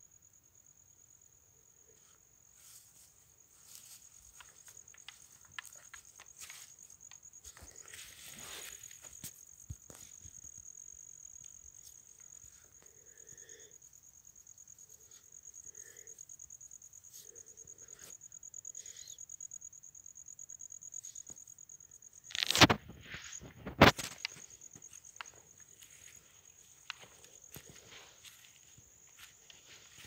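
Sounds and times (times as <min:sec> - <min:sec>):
insect trilling: 0:03.0 - 0:30.0
plants rustling: 0:22.3 - 0:30.0.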